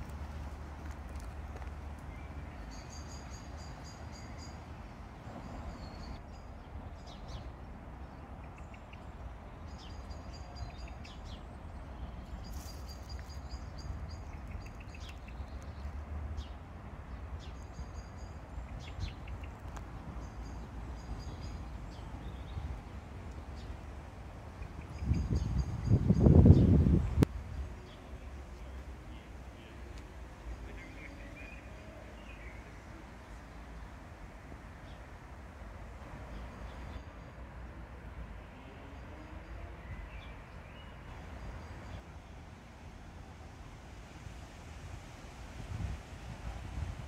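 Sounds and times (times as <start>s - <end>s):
songbirds chirping: 0.0s - 44.3s.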